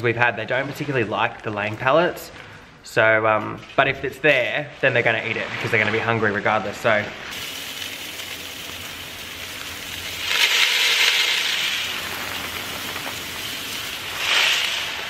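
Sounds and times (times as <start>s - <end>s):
grain pouring: 4.9s - 15.0s.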